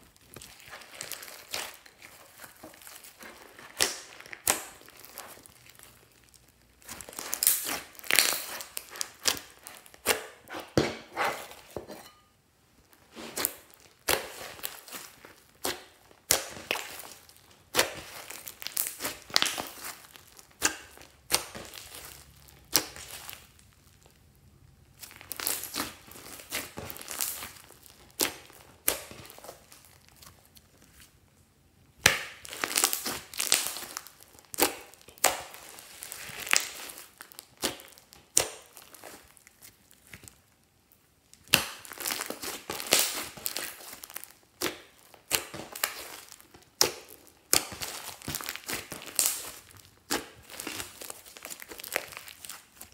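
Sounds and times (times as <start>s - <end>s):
slime sticky pops and crackles: 3.6s - 10.4s, 13.4s - 23.6s, 32.0s - 40.4s, 41.4s - 52.9s.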